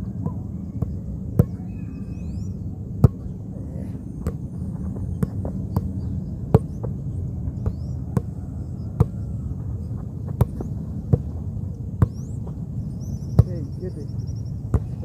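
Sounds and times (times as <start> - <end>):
football thuds: 10.0 - 11.3, 14.7 - 15.0.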